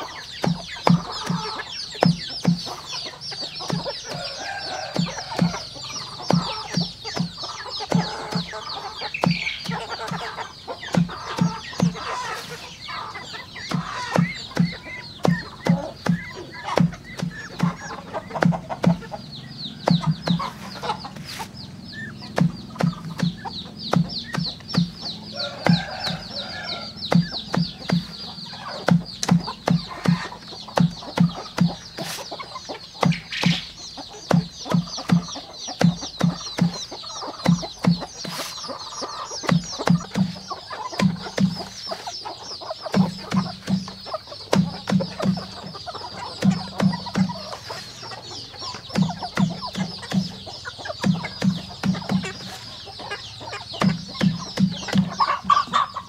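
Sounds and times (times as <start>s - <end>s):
chickens clucking: 0.0s - 56.0s
knife chopping banana stem: 28.8s - 32.3s.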